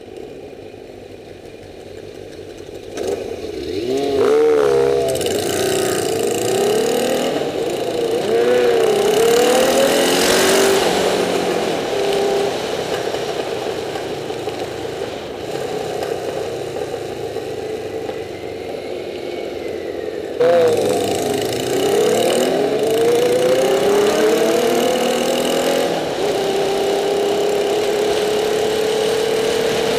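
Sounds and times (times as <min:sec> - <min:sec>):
wind and road noise: 0:00.0 - 0:29.9
motorcycle engine accelerating: 0:01.9 - 0:29.9.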